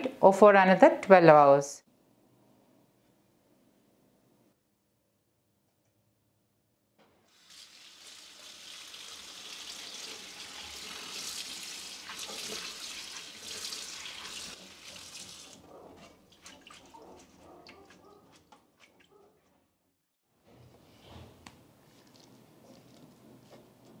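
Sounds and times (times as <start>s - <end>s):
water dripping: 7.3s - 15.6s.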